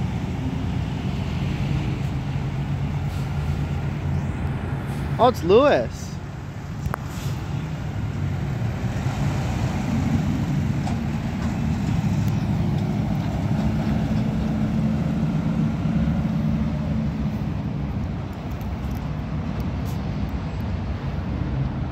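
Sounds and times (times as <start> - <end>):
garbage truck engine driving away: 8.3 - 17.2.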